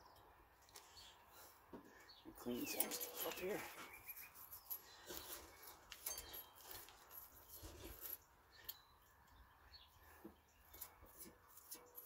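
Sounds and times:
tools and parts clicking and clinking: 2.6 - 9.4, 10.6 - 12.0.

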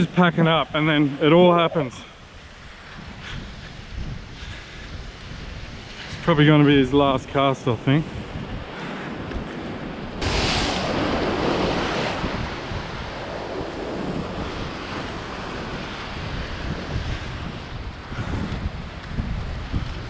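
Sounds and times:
wind buffeting microphone: 0.0 - 20.0
waves crashing against rocks: 9.8 - 18.1.

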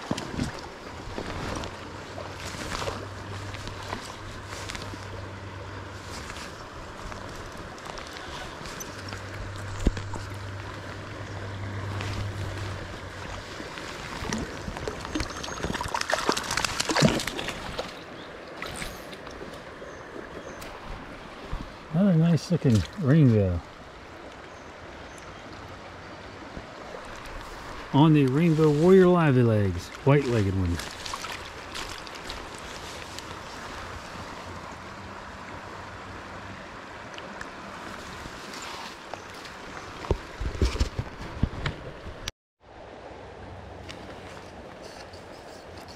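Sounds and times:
stream water running: 0.0 - 45.9
fish splashing at surface: 14.1 - 17.9.

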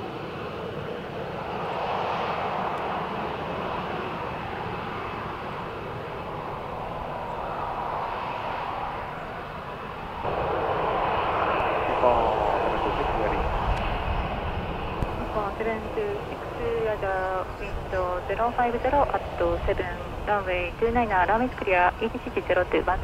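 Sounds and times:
jet engines running: 0.0 - 23.0.

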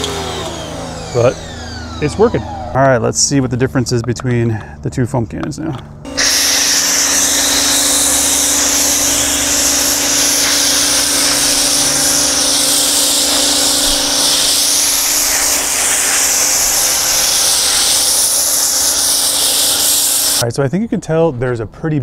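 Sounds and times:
motor hum: 0.0 - 4.0, 5.8 - 20.4
pressure washer foam spray hiss: 6.1 - 20.4.

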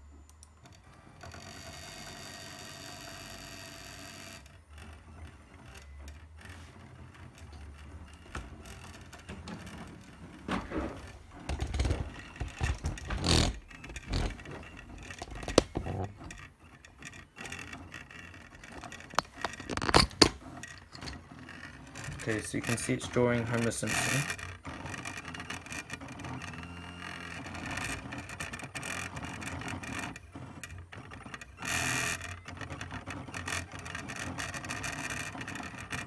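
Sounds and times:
whirring and ticking: 0.0 - 36.0
stepper motors whining: 7.1 - 29.2
knocks and rubs: 8.2 - 16.4.

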